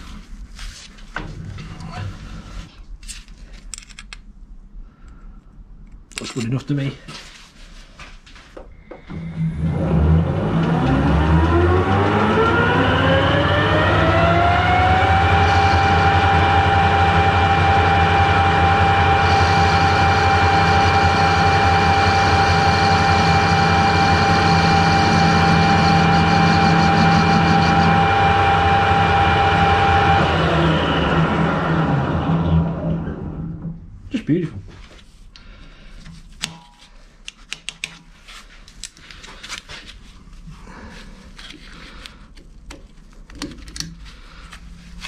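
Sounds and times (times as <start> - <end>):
lathe motor whining: 9.1 - 33.7.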